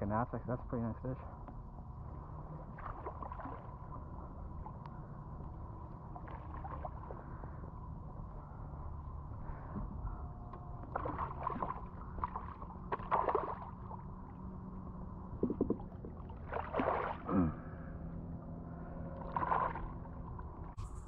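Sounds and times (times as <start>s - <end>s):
steady low hum: 0.0s - 21.0s
fish thrashing and splashing: 13.0s - 13.7s, 16.4s - 17.3s.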